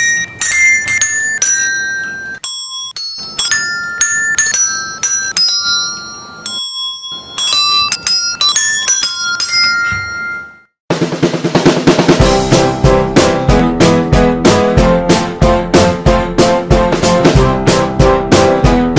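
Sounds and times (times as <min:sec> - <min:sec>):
desk bells dinging: 0:00.0 - 0:10.8.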